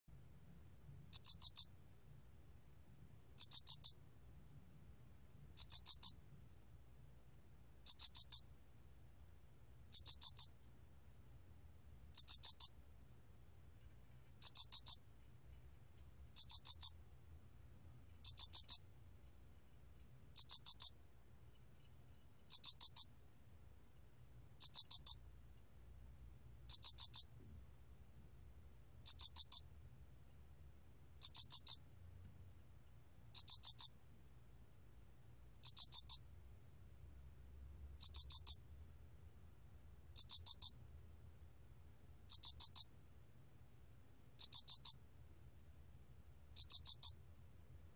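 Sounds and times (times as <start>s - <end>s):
cricket chirping: 1.1s - 1.8s, 3.4s - 4.0s, 5.6s - 6.2s, 7.8s - 8.5s, 9.9s - 10.6s, 12.1s - 12.8s, 14.4s - 15.1s, 16.4s - 17.0s, 18.2s - 18.9s, 20.3s - 21.0s, 22.4s - 23.2s, 24.6s - 25.2s, 26.7s - 27.4s, 29.0s - 29.7s, 31.2s - 31.9s, 33.3s - 34.0s, 35.6s - 36.3s, 38.0s - 38.6s, 40.2s - 40.8s, 42.3s - 42.9s, 44.4s - 45.0s, 46.6s - 47.2s.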